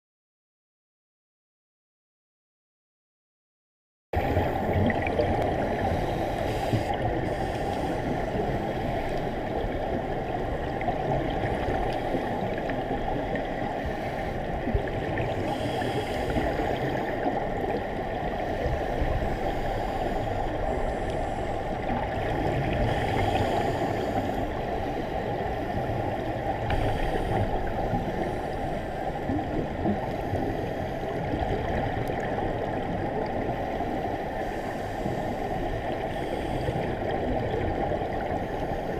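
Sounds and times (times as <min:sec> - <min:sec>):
underwater regulator bubbles: 0:04.2 - 0:33.8.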